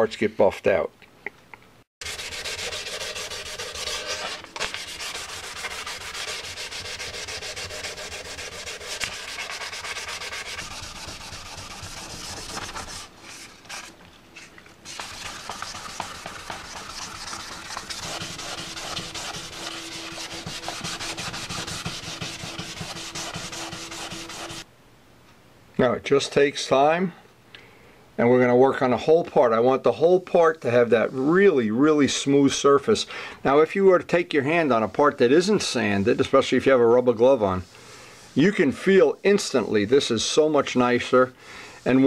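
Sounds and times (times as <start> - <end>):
sandpaper rubbing: 2.0 - 24.7.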